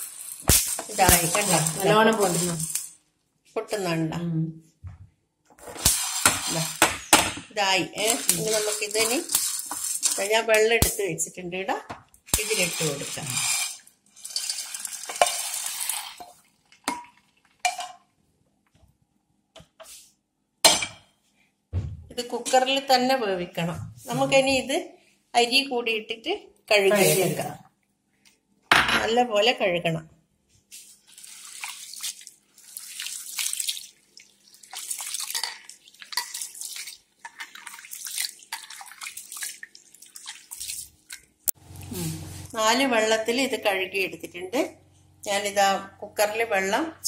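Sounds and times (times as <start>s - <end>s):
water sloshing in a metal pot: 0.0s - 3.0s, 5.6s - 10.8s, 12.4s - 18.2s, 30.9s - 41.4s
hand rubbing rice in water: 30.8s - 41.2s.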